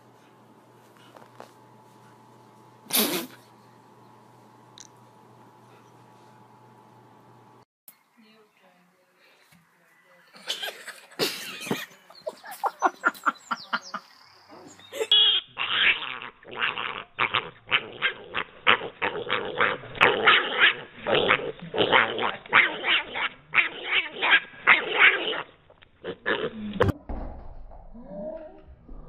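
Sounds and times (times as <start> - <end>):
piglet making short calls: 15.1 - 18.9.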